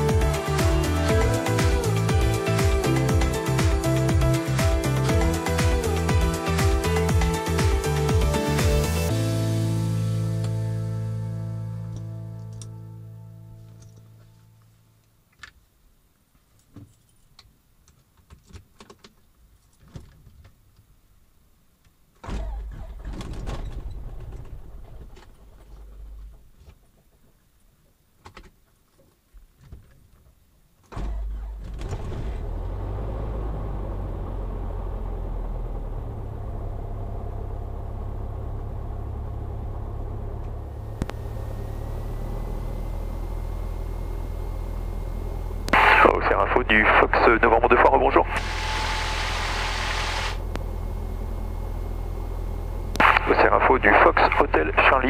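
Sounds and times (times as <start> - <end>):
piston engine starting and idling: 30.9 - 46.7
low rumble: 31.1 - 55.0
faint high whine: 36.2 - 55.0.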